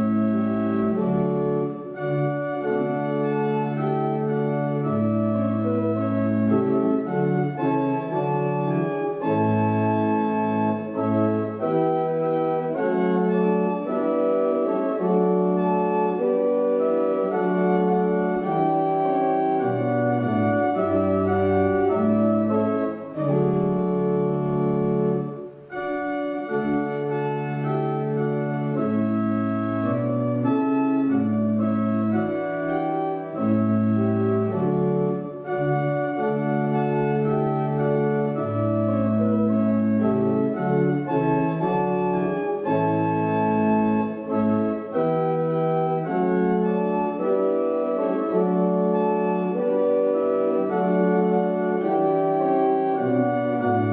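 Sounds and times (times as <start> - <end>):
church organ playing hymn: 0.0 - 53.9.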